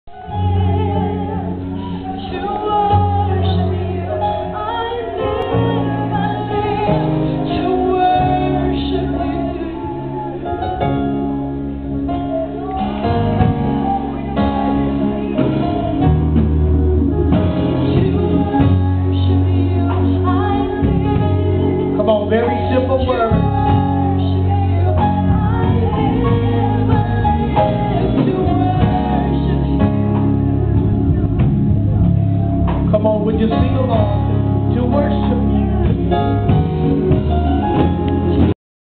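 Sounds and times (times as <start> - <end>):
woman singing into microphone: 0.1 - 11.4, 12.1 - 31.2
instrumental accompaniment with bass: 0.1 - 38.6.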